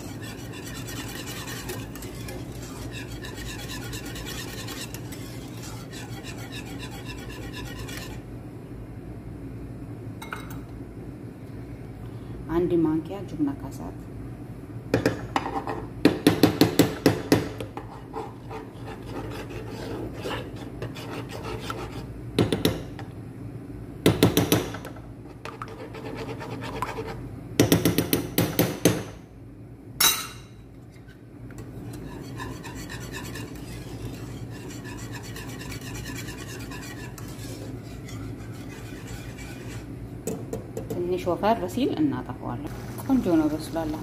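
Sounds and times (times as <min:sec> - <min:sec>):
wire whisk scraping a pan: 0:00.0 - 0:08.2, 0:17.8 - 0:22.1, 0:31.0 - 0:40.0.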